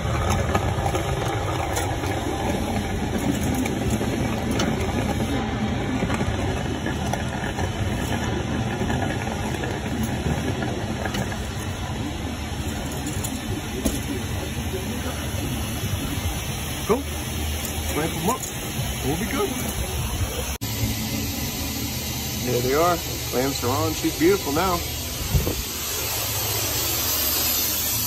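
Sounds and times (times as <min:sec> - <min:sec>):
engine droning: 0:00.0 - 0:28.0.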